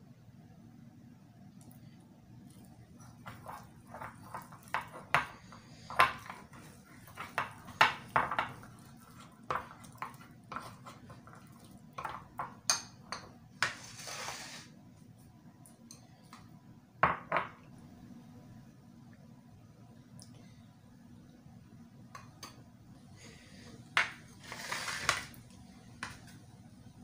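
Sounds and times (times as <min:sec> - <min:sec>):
spoon scraping bowl: 0:03.0 - 0:12.4, 0:13.1 - 0:14.7, 0:24.3 - 0:25.4.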